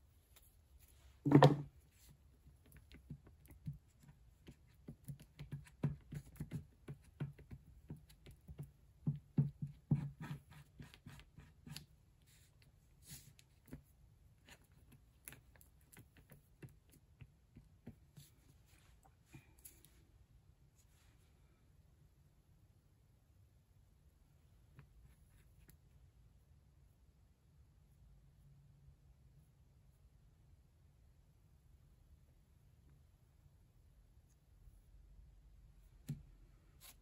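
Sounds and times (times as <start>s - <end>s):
knock on tabletop: 1.2s - 1.7s.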